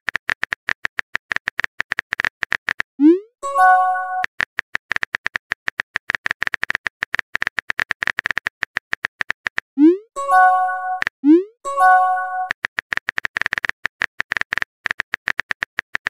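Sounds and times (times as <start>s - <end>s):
phone keyboard typing clicks: 11.8s - 16.0s.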